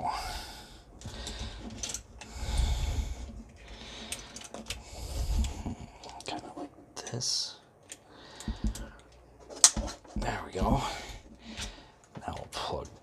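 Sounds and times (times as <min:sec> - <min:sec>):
person breathing: 0:00.0 - 0:06.2, 0:08.0 - 0:09.2, 0:10.7 - 0:12.1
plastic parts clicking: 0:01.0 - 0:02.3, 0:03.5 - 0:04.8.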